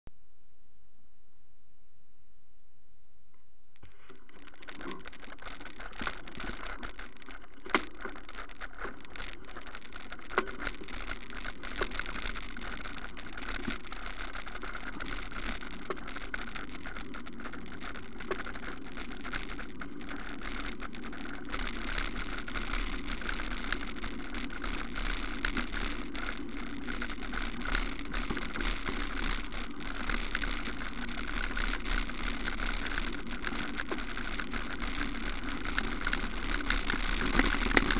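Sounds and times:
wheels crunching on gravel: 0:03.8 - 0:37.9.

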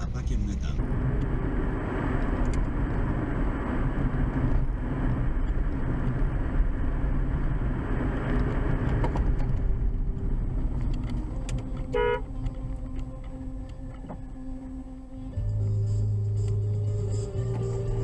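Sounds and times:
car interior road noise: 0:00.0 - 0:18.0
car horn toot: 0:11.9 - 0:12.4.

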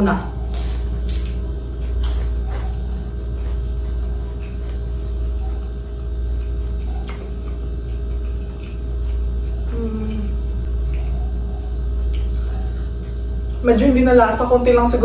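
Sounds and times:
low room hum: 0:00.0 - 0:15.0
crisp chewing clicks: 0:06.3 - 0:09.3, 0:11.8 - 0:13.6.

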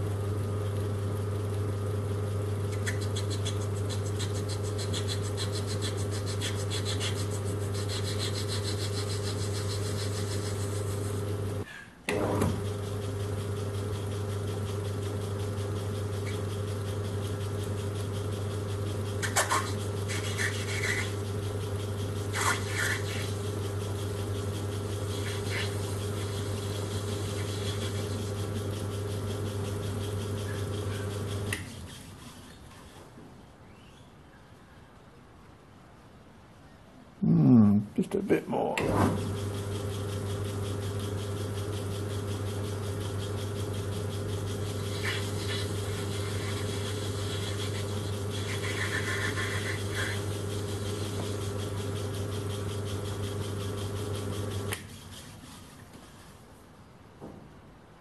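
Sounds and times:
metal lathe humming: 0:03.6 - 0:32.1, 0:38.8 - 0:54.9
lathe tool scraping metal: 0:03.7 - 0:11.7, 0:12.6 - 0:32.4, 0:38.9 - 0:55.2.

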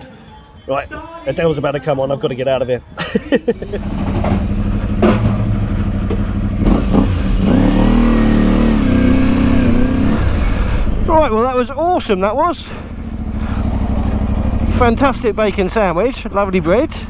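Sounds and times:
motorcycle engine pulling away: 0:03.6 - 0:17.0.

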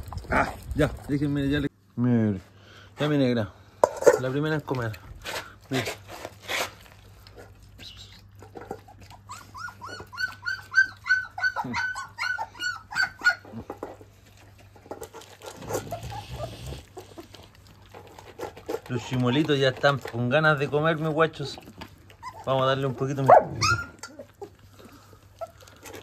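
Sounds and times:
puppies whining and yelping: 0:07.6 - 0:14.1, 0:15.2 - 0:18.2, 0:18.9 - 0:19.8, 0:21.2 - 0:26.0.

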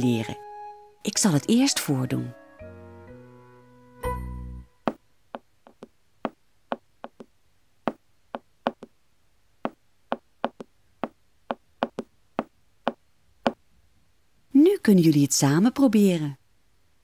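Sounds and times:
dancer's tapping footsteps: 0:04.9 - 0:07.3, 0:07.9 - 0:08.9, 0:09.7 - 0:13.0.

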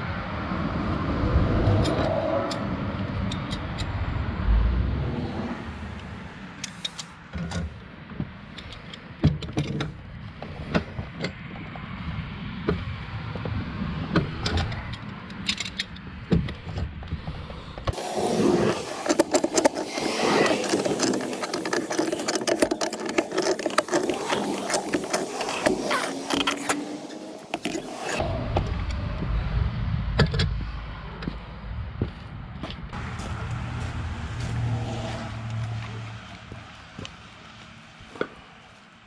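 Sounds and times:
low rumble: 0:00.0 - 0:06.4, 0:28.2 - 0:37.8
pipe wrenches clicking on metal: 0:18.9 - 0:28.2.

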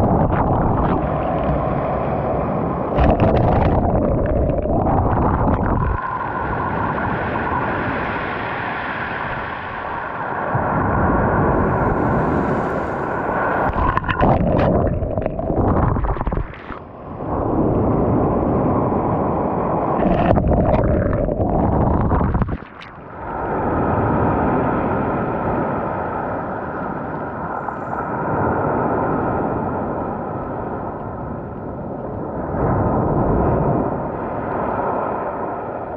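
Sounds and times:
crackling splashes: 0:02.9 - 0:06.1, 0:11.6 - 0:16.9, 0:20.0 - 0:23.3.

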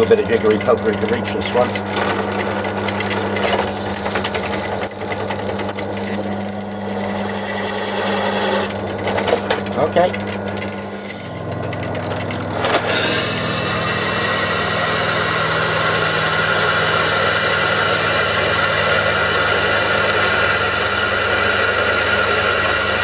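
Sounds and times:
drill press motor hum: 0:01.0 - 0:23.0
drill bit whining cutting metal: 0:01.8 - 0:09.5, 0:12.8 - 0:23.0.

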